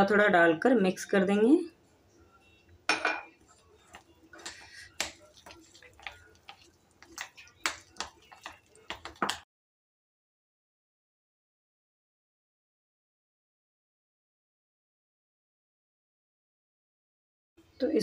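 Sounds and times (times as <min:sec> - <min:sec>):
spoon stirring batter in a bowl: 0:03.2 - 0:09.5.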